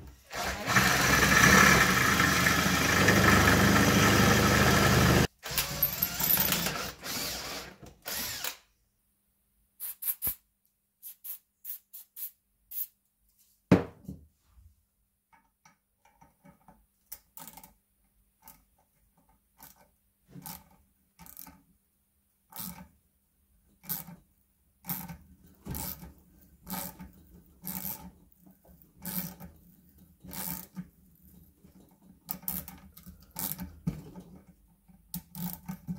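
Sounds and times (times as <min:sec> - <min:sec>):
power drill drilling: 0:00.3 - 0:08.6.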